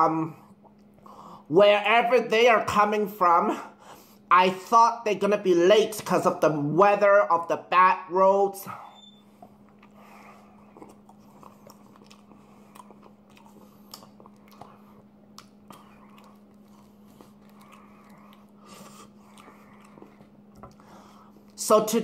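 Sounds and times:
faint low hum: 0.0s - 22.0s
person chewing: 0.4s - 1.4s, 9.0s - 21.6s
wet mouth clicks: 10.6s - 20.8s.

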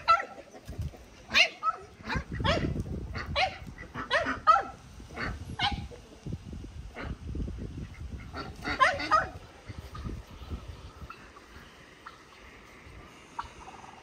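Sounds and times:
poultry calling: 7.8s - 14.0s.

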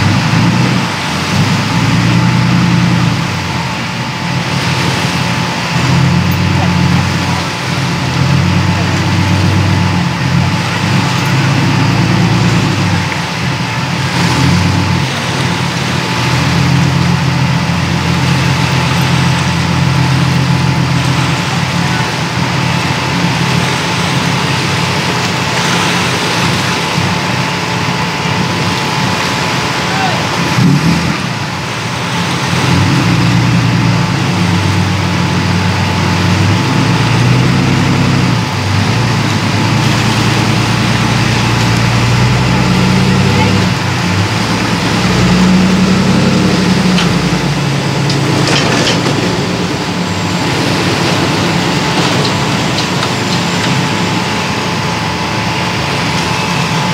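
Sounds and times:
engine idling: 0.0s - 56.9s
background voices: 38.7s - 55.4s.

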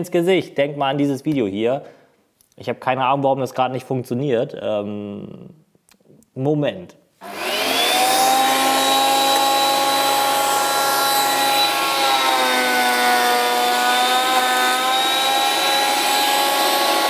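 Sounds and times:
planer motor whining: 7.2s - 17.0s.

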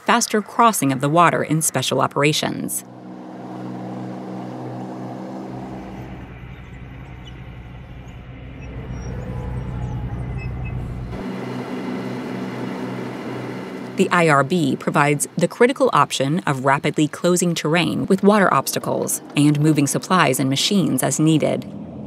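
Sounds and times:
tracked vehicles engine drone: 0.0s - 22.0s
deep low rumble: 2.8s - 11.4s.

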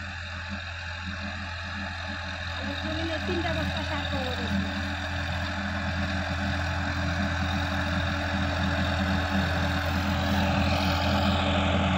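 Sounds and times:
tractor diesel engine under load: 0.0s - 11.9s.

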